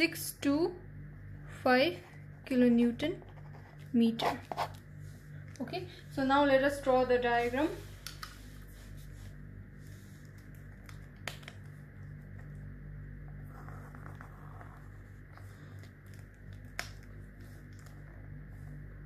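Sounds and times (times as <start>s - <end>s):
low electrical hum: 0.0s - 19.0s
pen scratching on paper: 3.3s - 4.8s.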